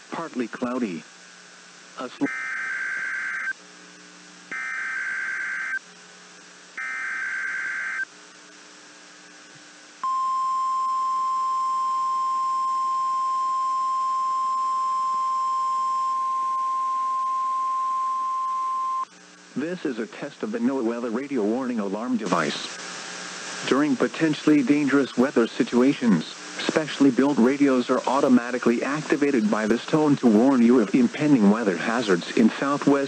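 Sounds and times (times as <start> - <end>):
steady alarm tone: 2.3 - 3.6, 4.5 - 5.8, 6.8 - 8.1
raspy digital data bursts: 4.5 - 5.8, 6.8 - 8.1.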